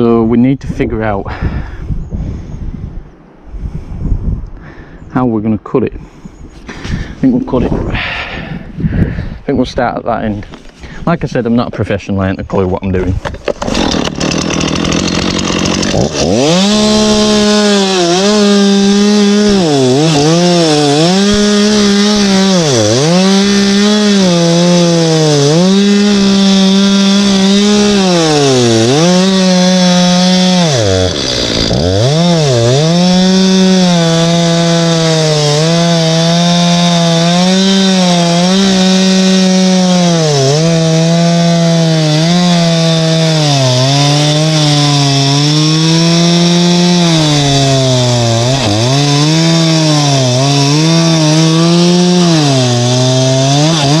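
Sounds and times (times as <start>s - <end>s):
chainsaw cutting into log: 13.3s - 54.0s.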